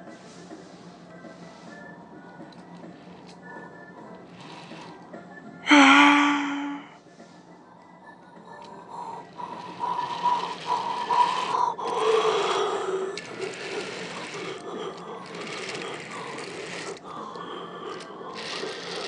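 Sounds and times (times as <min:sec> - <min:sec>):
model train motor and gears: 0:04.2 - 0:05.0, 0:08.6 - 0:19.0.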